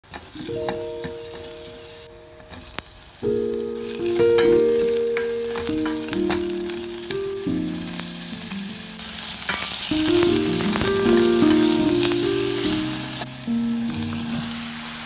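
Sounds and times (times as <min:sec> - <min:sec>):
garlic and onion sizzling in oil: 0:00.0 - 0:15.0
background music with held notes: 0:00.3 - 0:15.0.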